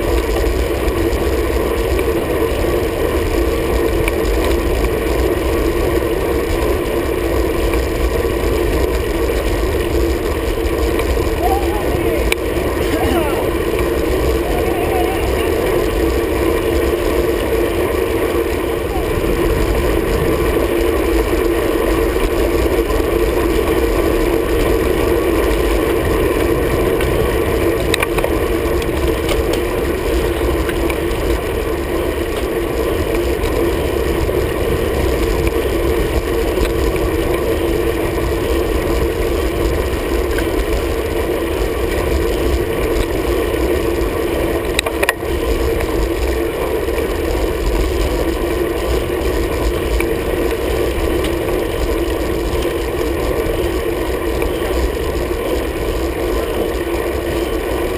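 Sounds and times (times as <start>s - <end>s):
bicycle road noise: 0.0s - 57.9s
wind noise: 0.0s - 57.9s.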